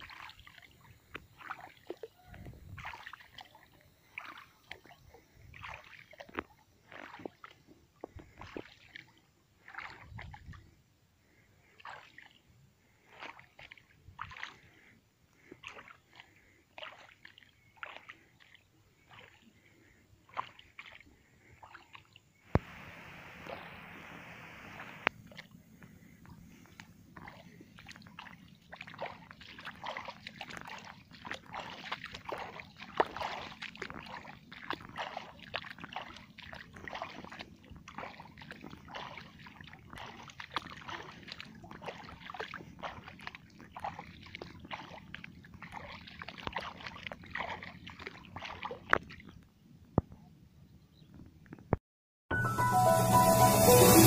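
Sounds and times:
shallow water splashing: 0:00.0 - 0:49.4
steady hiss: 0:22.6 - 0:25.1.

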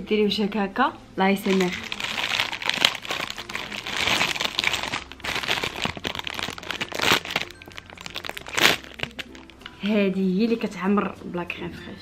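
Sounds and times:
plastic packaging crinkling: 0:01.4 - 0:09.7.

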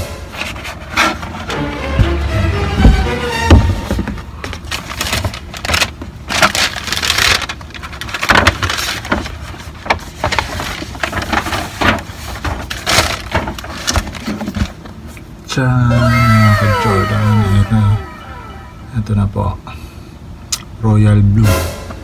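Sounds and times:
tissue paper rustling: 0:03.5 - 0:15.1.

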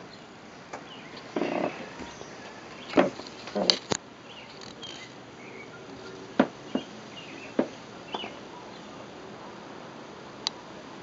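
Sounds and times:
steady background hiss: 0:00.0 - 0:11.0
faint high chirps: 0:04.2 - 0:09.0.

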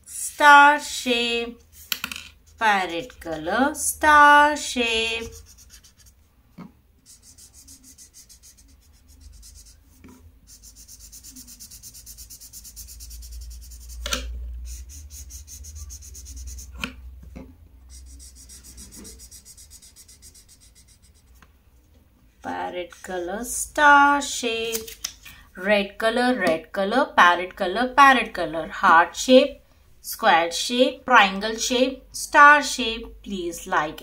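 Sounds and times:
marker scribbling on paper: 0:01.5 - 0:06.2, 0:07.0 - 0:16.9, 0:17.9 - 0:21.4.

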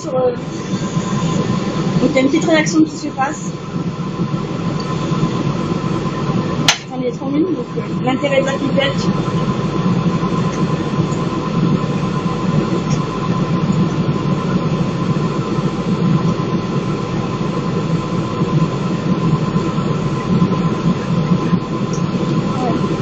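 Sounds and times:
extraction fan humming: 0:00.0 - 0:23.0.

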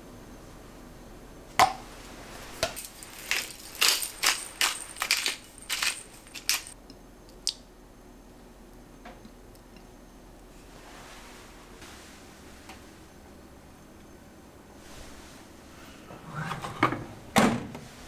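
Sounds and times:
pepper mill grinding: 0:02.6 - 0:06.8.

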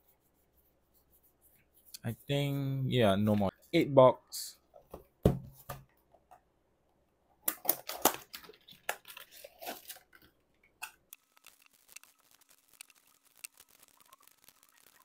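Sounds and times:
foil packs crinkling and tearing: 0:07.7 - 0:10.2, 0:11.2 - 0:15.0.

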